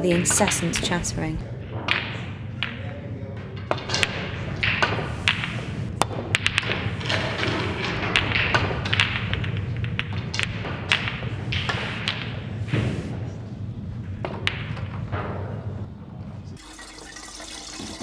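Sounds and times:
low steady hum: 0.0s - 1.7s
snooker balls clicking: 3.6s - 12.6s.

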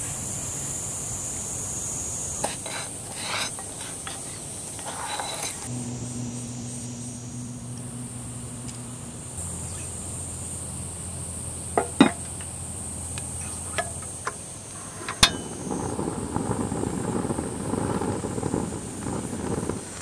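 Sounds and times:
insects droning: 0.0s - 20.0s
gas burner rushing: 1.8s - 20.0s
gas stove igniter click: 7.6s - 9.2s
lid knocking against pot: 11.8s - 12.3s.

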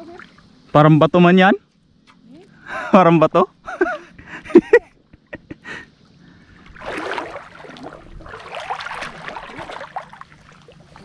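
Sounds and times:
water splashing: 6.4s - 11.0s.

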